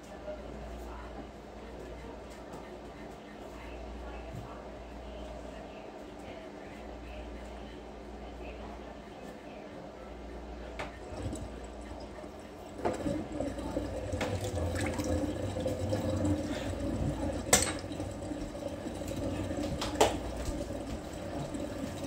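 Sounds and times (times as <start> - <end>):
running water: 10.8 - 22.0.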